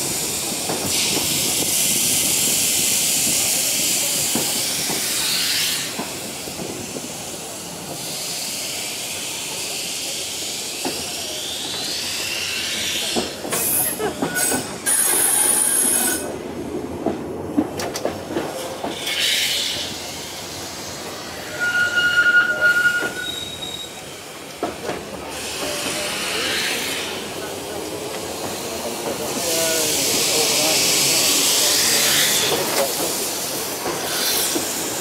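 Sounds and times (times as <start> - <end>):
tram wheels rumbling on rails: 0.0 - 35.0
wheels squealing: 21.2 - 24.1.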